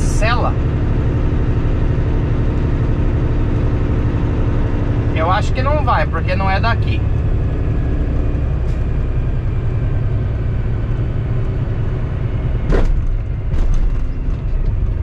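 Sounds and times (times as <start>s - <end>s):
truck engine running low: 0.0s - 15.0s.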